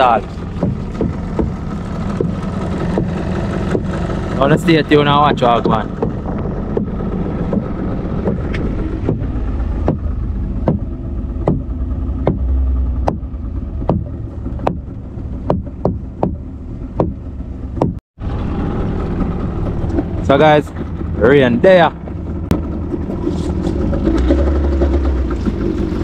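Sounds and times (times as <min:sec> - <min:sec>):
boat engine rumble: 0:00.0 - 0:26.0
sharp knocks: 0:00.6 - 0:03.9, 0:05.3 - 0:18.0.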